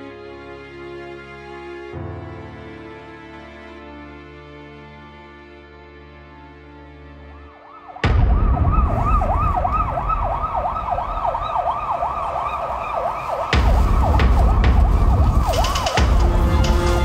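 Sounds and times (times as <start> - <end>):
soft music: 0.0 - 17.0
emergency siren yelping: 7.4 - 17.0
low rumble: 8.0 - 17.0.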